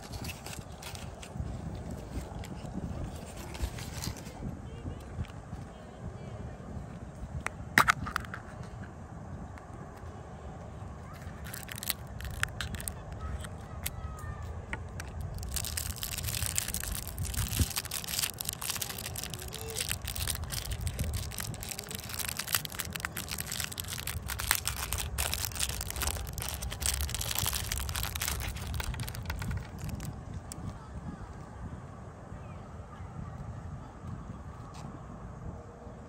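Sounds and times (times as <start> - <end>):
plastic wrapper crinkling: 0.0 - 1.4, 2.0 - 4.4, 11.2 - 13.9, 14.8 - 30.6
steady low rumble: 0.0 - 32.5.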